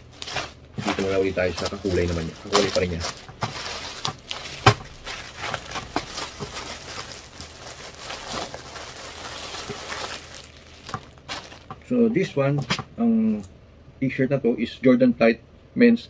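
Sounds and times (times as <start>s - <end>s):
plastic bag crinkling: 0.0s - 12.4s.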